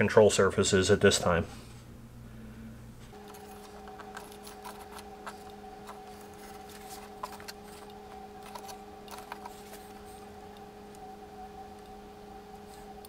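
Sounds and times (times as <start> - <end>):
faint steady hum: 0.0 - 13.0.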